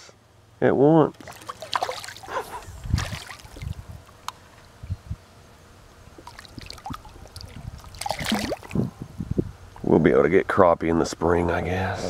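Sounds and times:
water splashing and trickling: 0:01.1 - 0:04.0, 0:06.1 - 0:08.9.

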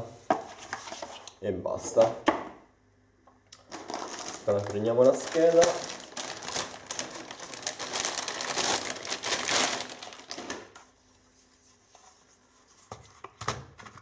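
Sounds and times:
packaging rustling and clicking: 0:03.6 - 0:10.8.

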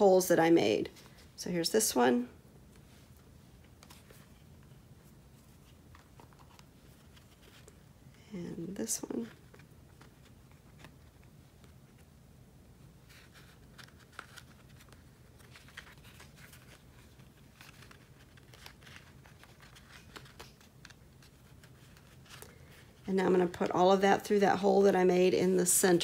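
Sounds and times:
foil crinkling and rustling: 0:13.2 - 0:23.0.

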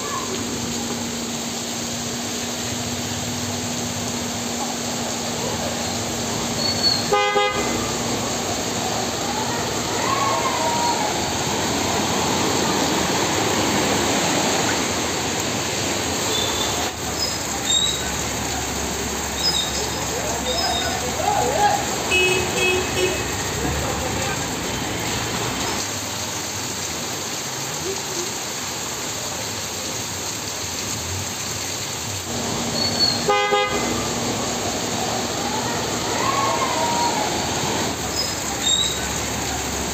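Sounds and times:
heavy rain hiss: 0:00.0 - 0:39.9
vehicle driving through floodwater: 0:00.0 - 0:39.9
vehicle horn toot: 0:07.0 - 0:08.0, 0:22.1 - 0:23.5, 0:33.2 - 0:34.2.

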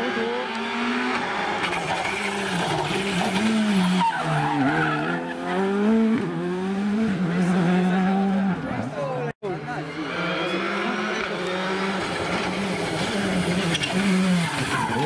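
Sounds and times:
rally car engine passing by: 0:09.6 - 0:15.0.

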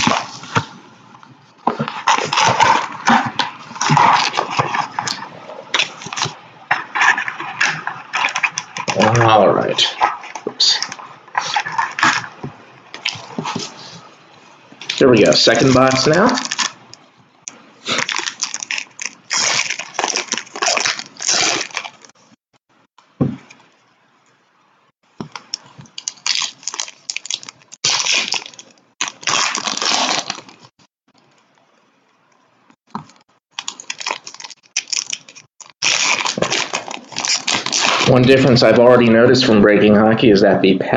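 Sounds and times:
wrappers crinkling and tearing: 0:01.7 - 0:13.9, 0:14.8 - 0:16.8, 0:17.8 - 0:22.2, 0:25.3 - 0:30.7, 0:32.9 - 0:38.6.

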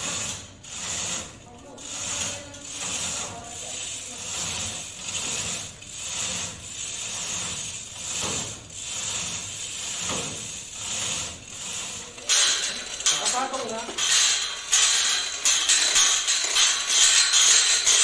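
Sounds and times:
loud metallic clatter: 0:00.0 - 0:18.0
ratchets clicking: 0:00.0 - 0:18.0
hand chains rattling: 0:09.2 - 0:18.0.

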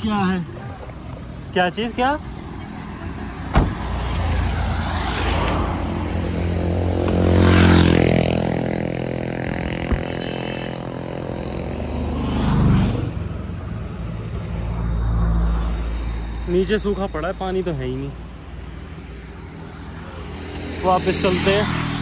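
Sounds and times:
vehicles passing: 0:00.0 - 0:22.0.

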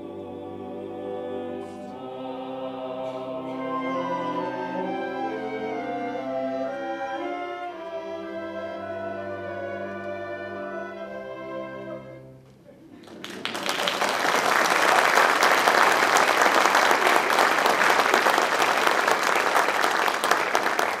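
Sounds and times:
audience applause: 0:13.0 - 0:21.0.

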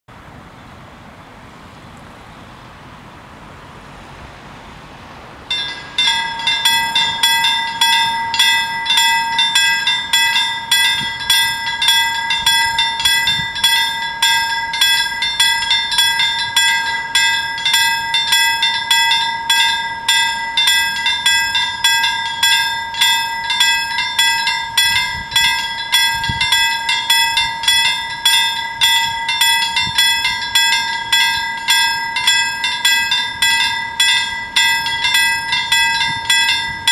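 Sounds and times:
level crossing warning bells: 0:05.4 - 0:36.9.

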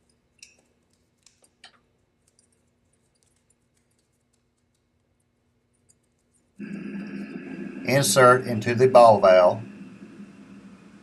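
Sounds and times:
faint clicks and handling noise: 0:00.0 - 0:06.6
faint steady hum: 0:00.0 - 0:11.0.

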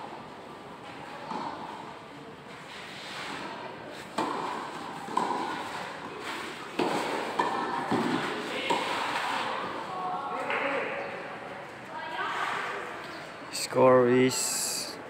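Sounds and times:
tennis ball bouncing: 0:04.1 - 0:09.2
tennis racket striking ball: 0:04.1 - 0:09.5.

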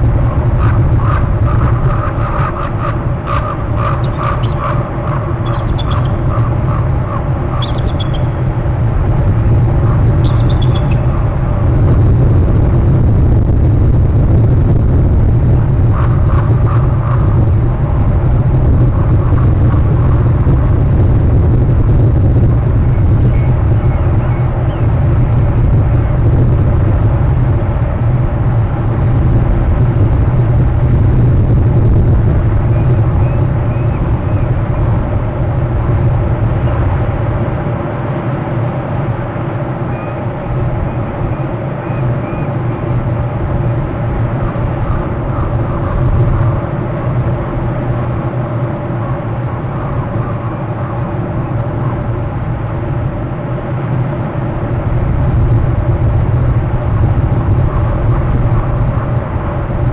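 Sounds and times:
faint steady hum: 0:00.0 - 0:59.9
loud low rumble: 0:00.0 - 0:59.9
short bird calls: 0:03.3 - 0:08.4, 0:10.2 - 0:11.1.

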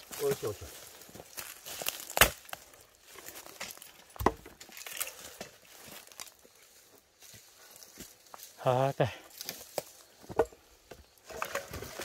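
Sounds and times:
axe chopping wood: 0:01.8 - 0:02.6, 0:04.2 - 0:04.5.

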